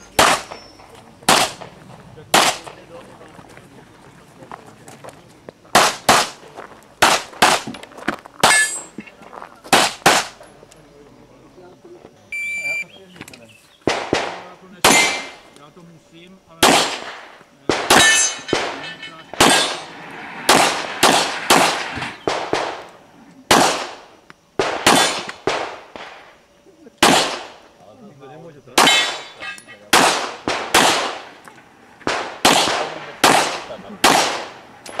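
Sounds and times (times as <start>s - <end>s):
pistol gunshots: 0.1s - 0.6s, 1.3s - 1.7s, 2.3s - 2.8s, 5.7s - 6.4s, 7.0s - 7.7s, 9.7s - 10.4s, 13.9s - 15.5s, 16.6s - 22.9s, 23.5s - 26.3s, 27.0s - 27.6s, 28.8s - 31.4s, 32.0s - 35.0s.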